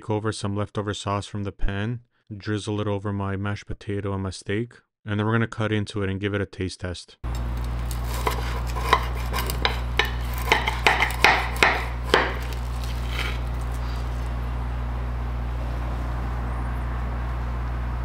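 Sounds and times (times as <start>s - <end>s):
steady low hum: 7.3s - 18.0s
knife and fork scraping plate: 7.7s - 14.1s.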